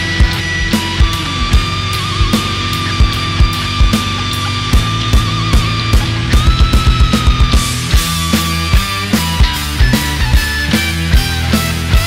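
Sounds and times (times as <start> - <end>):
sustained low notes: 0.0 - 9.9
steady drum beat: 0.0 - 12.0.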